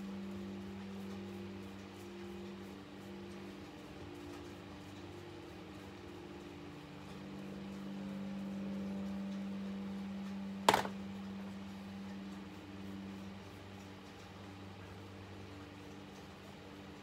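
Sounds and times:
steady low hum: 0.0 - 17.0
sharp knock: 10.7 - 10.9.

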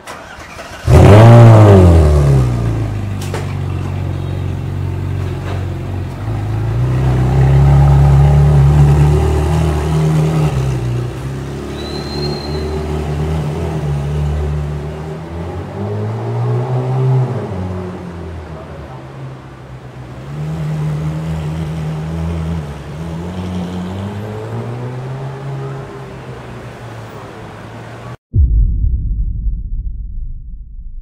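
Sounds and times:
car engine starting and idling: 0.0 - 4.0.

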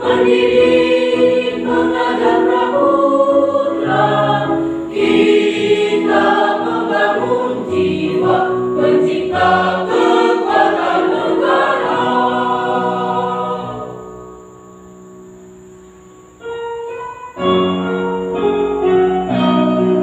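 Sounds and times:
mixed choir singing in harmony: 0.0 - 14.3.

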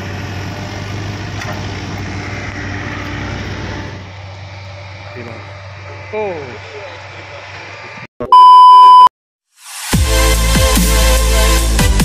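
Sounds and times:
heavy diesel engine running: 0.0 - 8.0.

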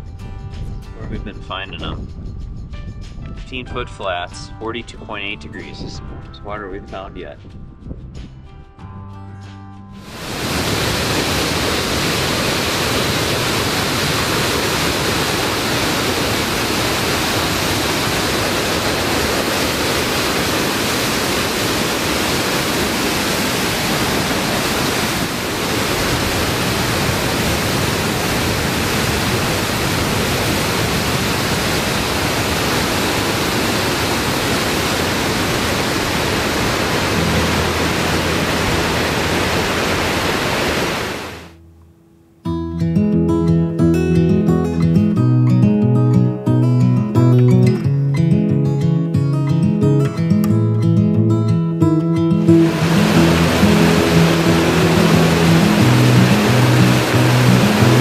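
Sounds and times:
waterfall rushing: 10.0 - 41.5, 52.4 - 58.0.

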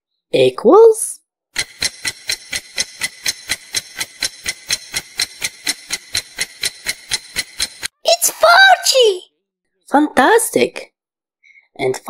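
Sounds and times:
clock ticking: 1.6 - 7.9.

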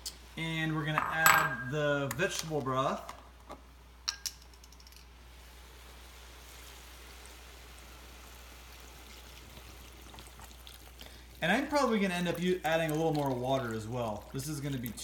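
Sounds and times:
liquid pouring into pot: 8.3 - 15.0.

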